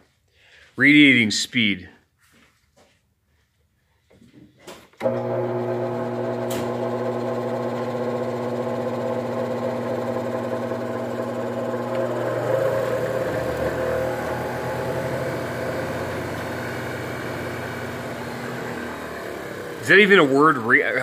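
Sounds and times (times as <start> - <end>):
bench grinder humming: 5.0 - 21.0.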